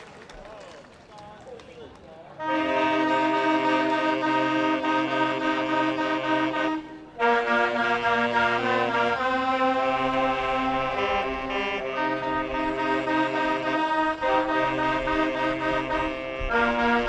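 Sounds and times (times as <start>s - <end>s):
saxophone ensemble playing chords: 2.4s - 17.0s.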